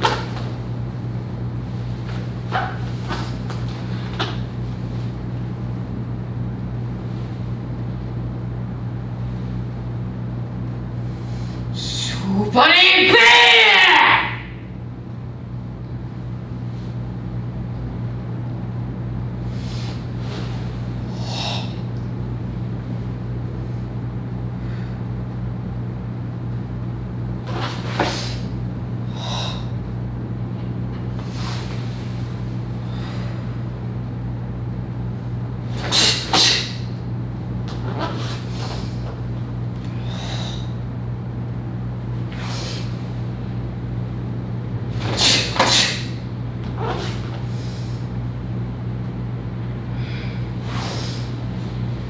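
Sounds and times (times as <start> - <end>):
low room hum: 0.0 - 52.0
forceful breathing: 29.1 - 29.8, 39.9 - 40.8.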